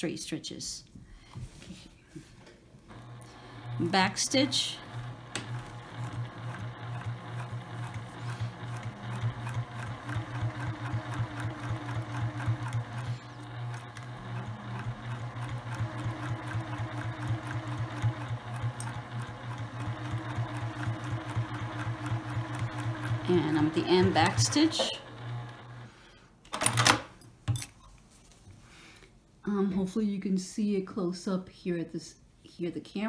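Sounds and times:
sewing machine running: 2.9 - 26.0.

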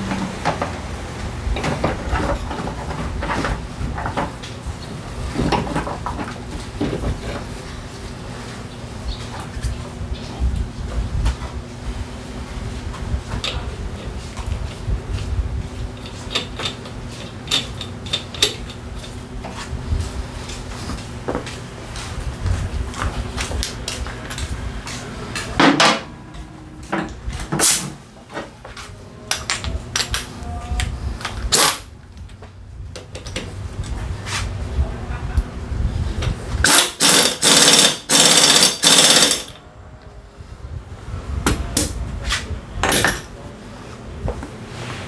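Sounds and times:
pneumatic impact wrench rattling: 16.0 - 19.2, 27.6 - 27.9, 31.5 - 31.9, 36.6 - 39.6
metal tools clinking: 36.6 - 39.6.

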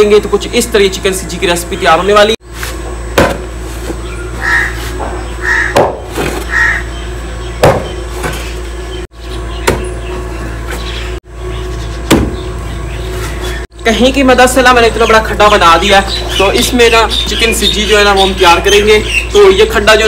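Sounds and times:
crows cawing: 4.4 - 7.0.

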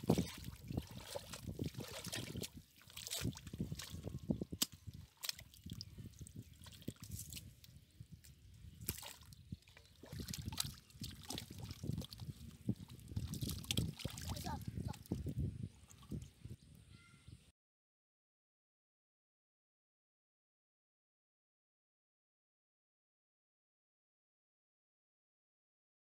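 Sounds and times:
mud and water squelching: 0.0 - 16.4
small splashes and drips: 0.0 - 16.4.

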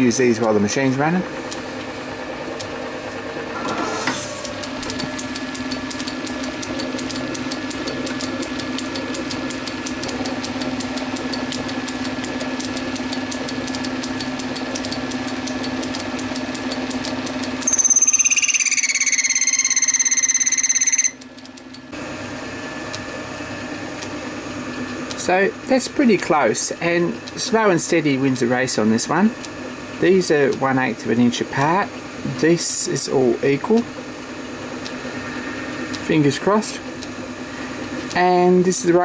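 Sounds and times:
metal lathe running with ticking: 0.0 - 21.9, 22.9 - 39.0
cutting tool squealing: 16.9 - 21.3.

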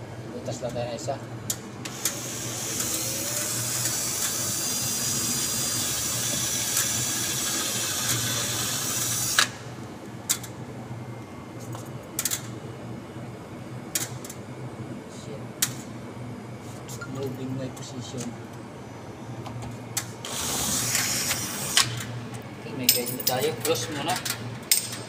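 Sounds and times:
cordless drill running: 1.9 - 9.5, 20.2 - 21.9.

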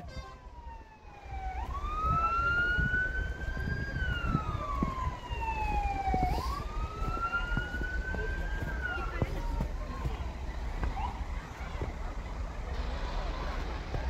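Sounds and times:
siren wailing: 0.5 - 9.2.

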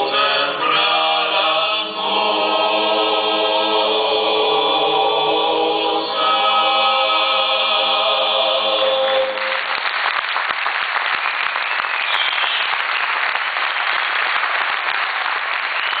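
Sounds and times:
male a cappella group singing: 0.0 - 9.6
audience applause: 8.8 - 16.0.

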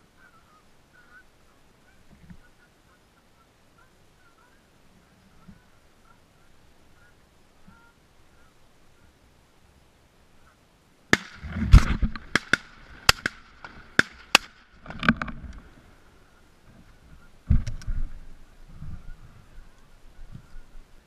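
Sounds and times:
geese honking faintly: 0.0 - 10.8, 15.6 - 21.0
low rustling: 11.1 - 21.0.

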